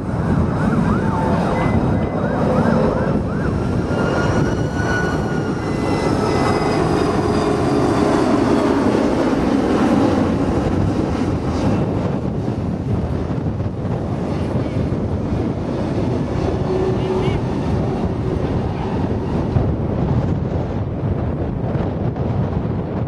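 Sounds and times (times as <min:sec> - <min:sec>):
siren yelping and wailing: 0:00.0 - 0:07.8
jet airliner rumble: 0:00.0 - 0:23.0
wind buffeting microphone: 0:00.0 - 0:23.0.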